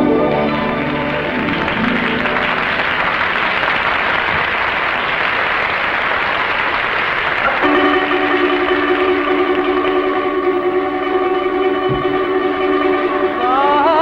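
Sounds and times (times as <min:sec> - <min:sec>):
band music: 0:00.0 - 0:03.8, 0:07.4 - 0:14.0
audience applauding: 0:00.0 - 0:14.0.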